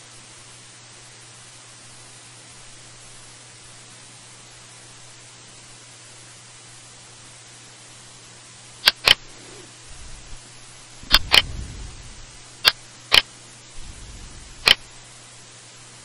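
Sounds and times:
steady hiss: 0.0s - 16.0s
computer mouse button clicking: 8.8s - 9.2s, 11.1s - 11.5s, 12.6s - 13.2s, 14.6s - 14.8s
mouse moving rumble: 8.8s - 12.4s.

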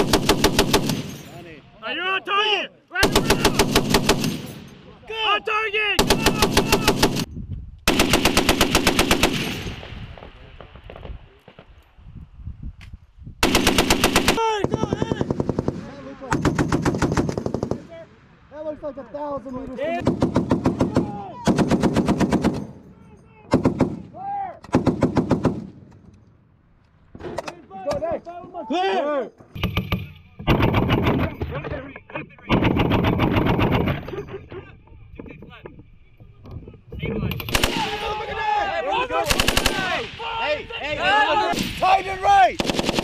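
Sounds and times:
heavy machine gun bursts: 39.2s - 39.9s.

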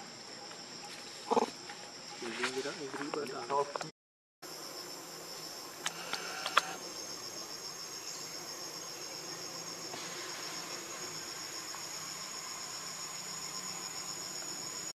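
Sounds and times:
insects chorus trilling: 0.0s - 3.8s, 4.4s - 14.9s
sharp clicks: 5.8s - 6.8s.

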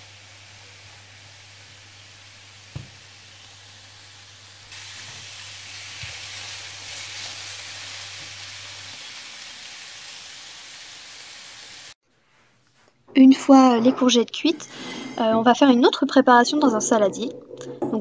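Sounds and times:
courgettes sizzling in a pan: 0.0s - 12.0s.

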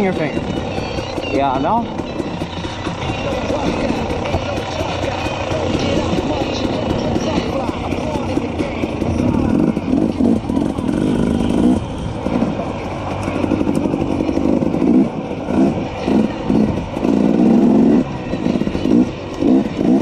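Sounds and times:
two-stroke engine revving: 0.0s - 20.0s.

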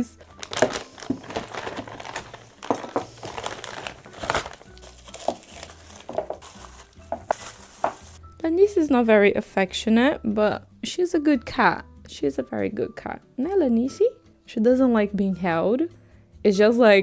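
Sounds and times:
plastic bag crinkling and rustling: 0.2s - 8.2s.

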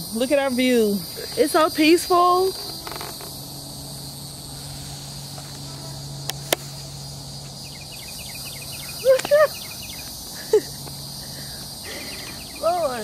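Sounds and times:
insects buzzing: 0.0s - 13.0s
low steady hum: 0.0s - 13.0s
sharp clicks: 6.2s - 6.7s.

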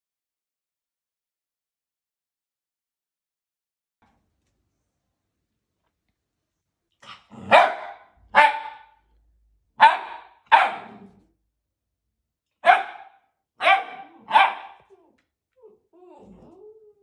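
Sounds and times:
puppy barking: 7.1s - 9.0s, 9.8s - 11.2s, 12.6s - 15.1s.

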